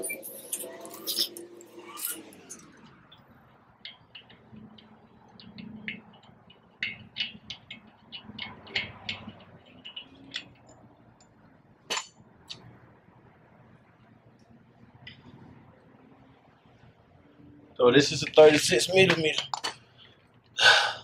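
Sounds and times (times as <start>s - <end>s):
metal hand tools clicking: 3.8s - 10.9s.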